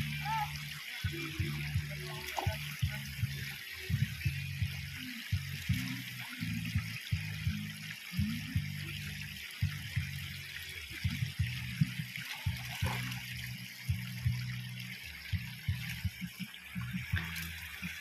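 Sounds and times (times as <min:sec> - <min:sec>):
river water rushing and trickling: 0:00.0 - 0:18.0
low knocks and rumbling: 0:11.0 - 0:14.7.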